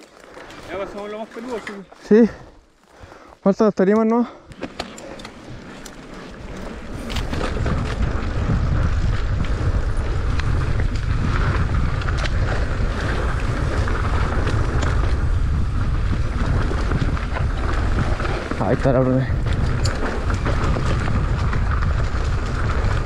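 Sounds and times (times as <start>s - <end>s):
bike rattling and clicking: 0.0s - 3.2s, 4.0s - 23.0s
wind buffeting microphone: 4.6s - 23.0s.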